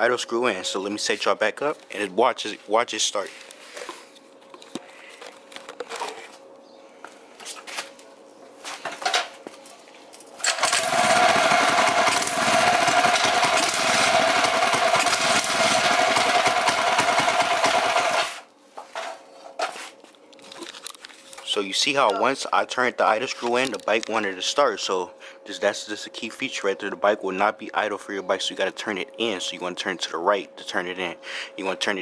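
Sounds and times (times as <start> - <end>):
small engine running: 10.5 - 18.4
engine knocking: 10.7 - 18.2.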